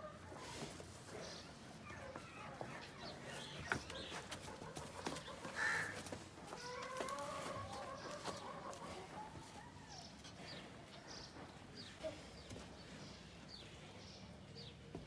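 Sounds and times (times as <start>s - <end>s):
chickens clucking: 0.0s - 13.8s
drawn-out chicken call: 3.7s - 10.0s.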